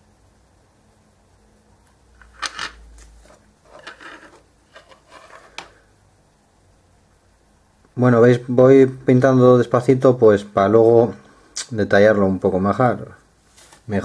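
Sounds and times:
handling noises on wooden table: 2.2s - 5.8s
rubbing rustle: 3.2s - 5.6s.

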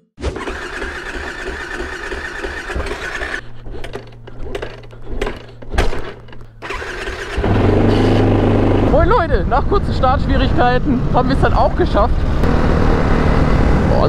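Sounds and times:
engine knocks and clunks: 0.2s - 14.0s
low engine hum: 7.3s - 14.0s.

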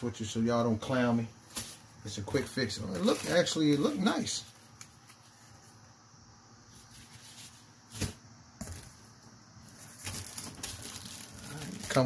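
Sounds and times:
plastic wrap crinkling: 9.6s - 12.0s.

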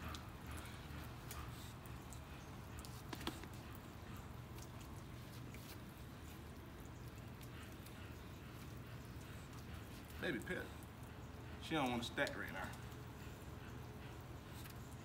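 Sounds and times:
faint clicks and rustles: 0.0s - 15.0s
low steady hum: 0.0s - 15.0s.

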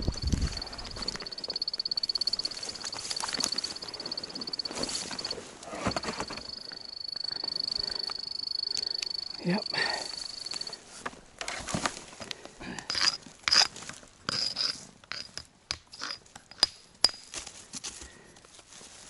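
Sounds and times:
high pulsing beep: 0.0s - 10.8s
rustling: 0.0s - 15.4s
rock hammer striking rock: 14.3s - 17.3s.

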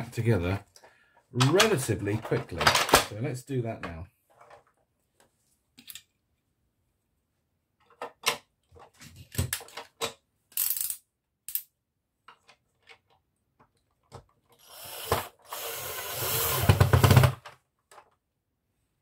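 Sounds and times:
plastic parts clicking and knocking: 0.7s - 3.2s, 7.8s - 15.5s, 16.5s - 18.2s
cordless drill driving a screw: 14.6s - 17.4s.

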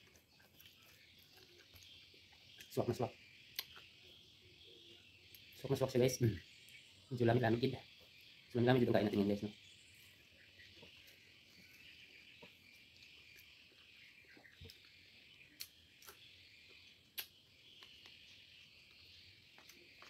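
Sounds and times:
soft eating clicks: 0.0s - 2.8s, 12.4s - 20.0s.

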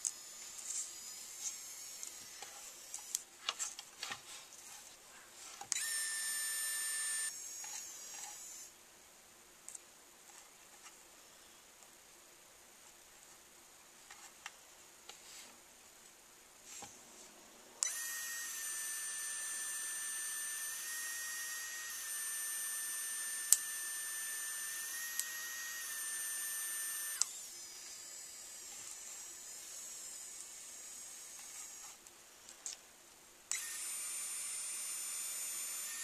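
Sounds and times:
pen motor whine: 0.0s - 3.2s, 5.7s - 8.7s, 17.8s - 32.0s, 33.5s - 36.0s.

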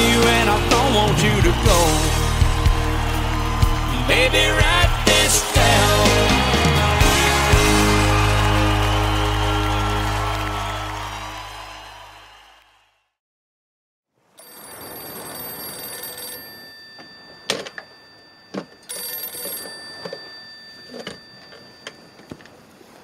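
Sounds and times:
country song: 0.0s - 10.4s
telephone bell ringing: 14.4s - 22.6s.

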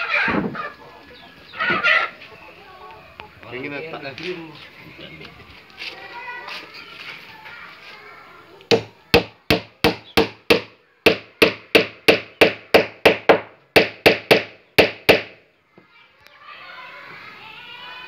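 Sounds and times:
hammer striking wooden hull: 8.7s - 15.4s.

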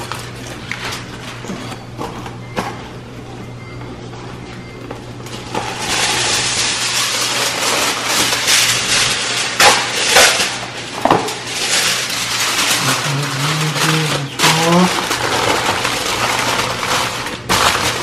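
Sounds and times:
aluminium foil crinkling: 0.0s - 1.5s, 5.2s - 18.0s.

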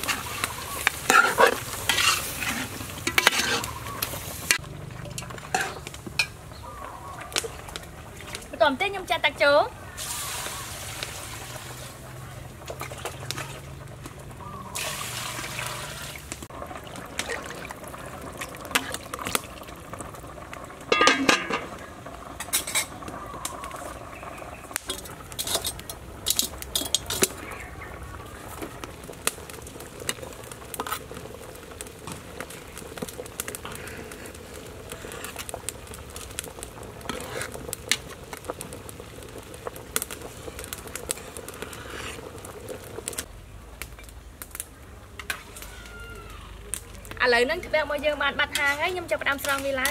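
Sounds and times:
metal pots and utensils clinking: 0.0s - 6.4s, 20.8s - 23.1s, 24.8s - 27.6s
water boiling in a pot: 0.0s - 49.9s
water poured into metal pot: 14.7s - 23.0s.

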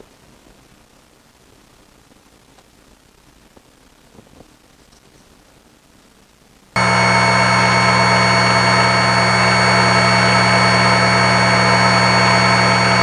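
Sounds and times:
drill press motor whining: 6.8s - 13.0s.

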